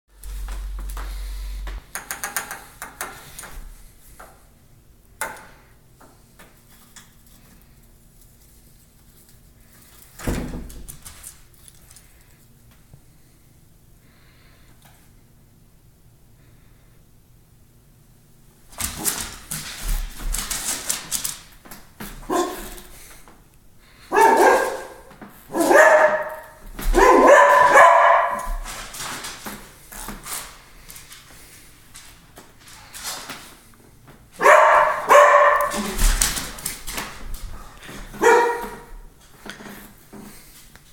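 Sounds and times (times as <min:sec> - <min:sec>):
dog barking: 0:22.3 - 0:22.8, 0:24.1 - 0:28.6, 0:34.4 - 0:36.0, 0:38.2 - 0:39.0.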